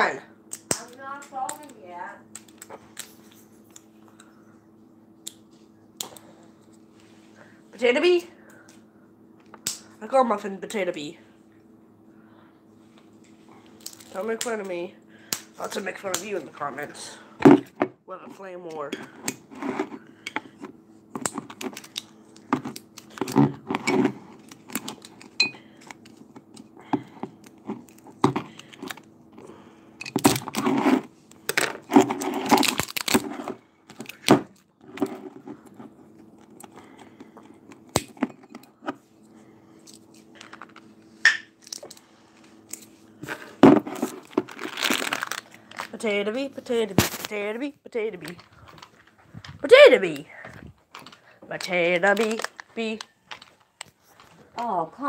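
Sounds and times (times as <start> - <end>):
steady low hum: 0.0 - 55.0
phone handling rustling: 50.4 - 54.4.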